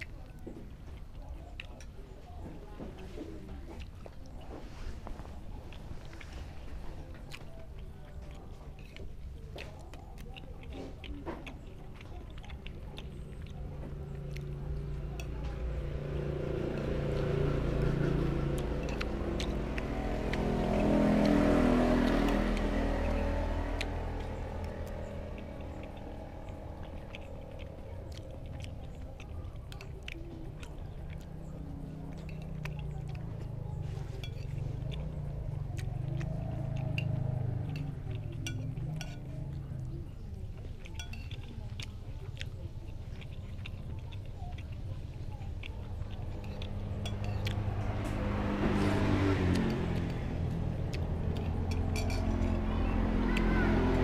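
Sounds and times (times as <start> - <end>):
chewing: 0.0 - 54.0
motor vehicle passing by: 1.2 - 54.0
metal spoon clinking on plate: 51.7 - 52.4.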